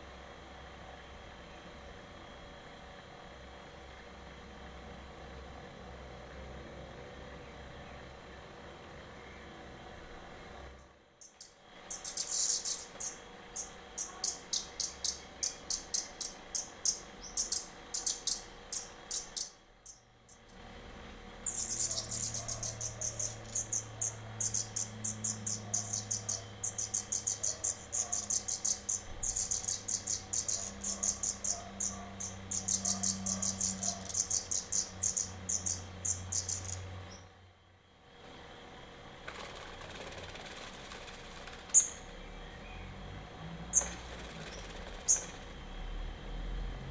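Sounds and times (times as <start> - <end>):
nestlings begging chirps: 11.2 - 20.6, 21.4 - 37.3, 41.7 - 42.9, 43.7 - 45.4.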